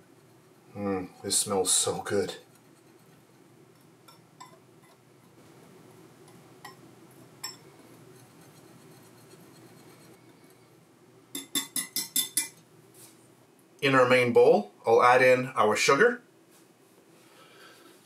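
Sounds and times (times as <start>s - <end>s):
whisk scraping in glass bowl: 0.0s - 3.4s, 7.4s - 10.2s
whisk clinking on glass: 7.4s - 7.8s, 11.3s - 12.6s.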